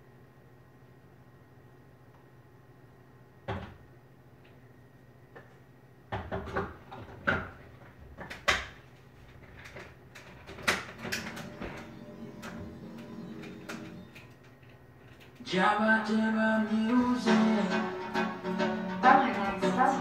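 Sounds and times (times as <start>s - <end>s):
faint steady hum: 0.0s - 20.0s
kitchen knocks and clanks: 6.1s - 7.6s.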